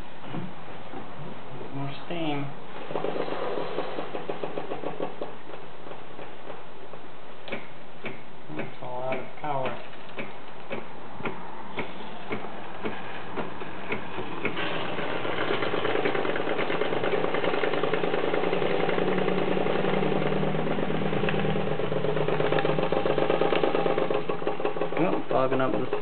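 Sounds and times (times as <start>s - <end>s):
model steam engine chuffing: 13.9s - 26.0s.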